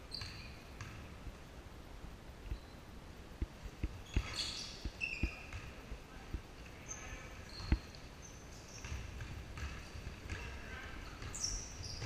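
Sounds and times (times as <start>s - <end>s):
shoe squeaks: 0.1s - 0.6s, 4.0s - 5.6s, 6.8s - 9.0s, 11.2s - 12.0s
basketball bouncing on wood floor: 3.8s - 5.8s, 8.7s - 12.0s.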